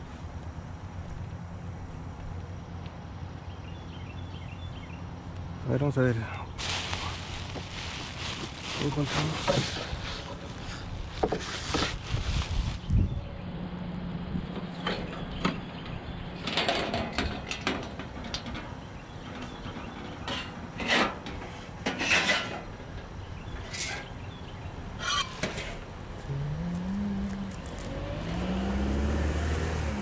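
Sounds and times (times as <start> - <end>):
items rattling on moving cart: 6.6 - 12.7.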